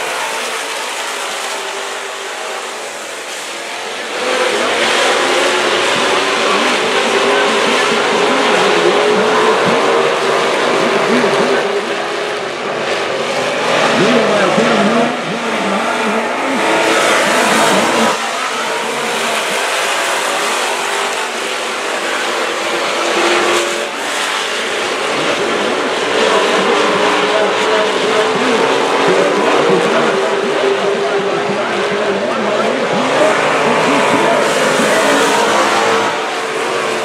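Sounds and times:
race car engines passing: 0.0s - 37.0s.

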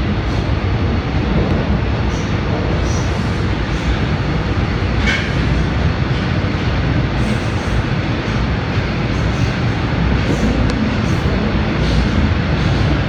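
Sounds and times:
subway train rumbling in tunnel: 0.0s - 13.0s.

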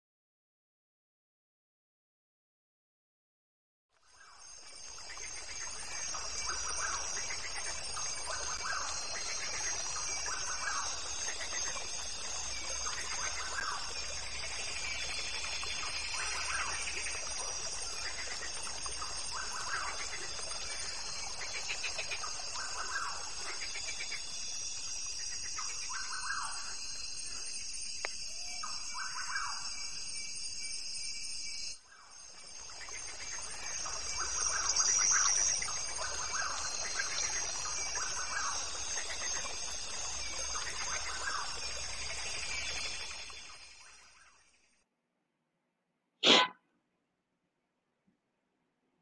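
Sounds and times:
short bird calls: 46.2s - 46.5s.

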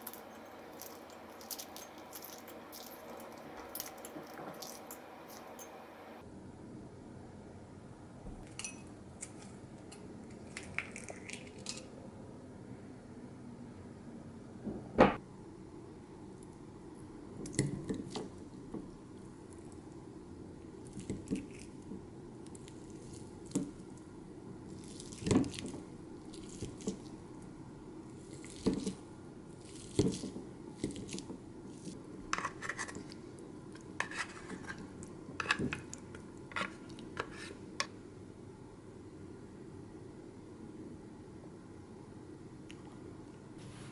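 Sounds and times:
soft squishing: 0.0s - 6.2s, 9.2s - 11.9s, 17.4s - 37.8s.

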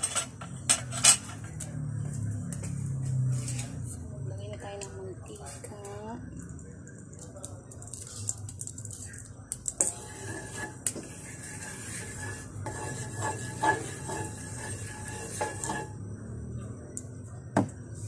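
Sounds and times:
wooden spoon scraping a pan: 9.8s - 16.0s.

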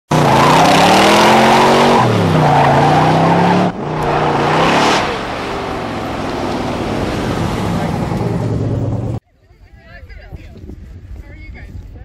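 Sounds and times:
car engine accelerating: 0.1s - 9.2s
road noise: 0.1s - 9.2s.

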